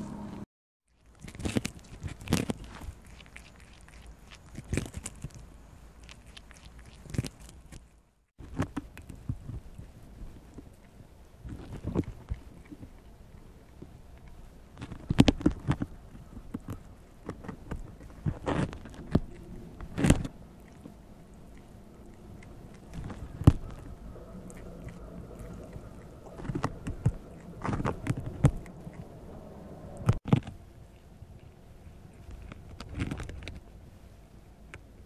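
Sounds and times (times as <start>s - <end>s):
prairie dog gnawing corn: 0.9s - 35.0s.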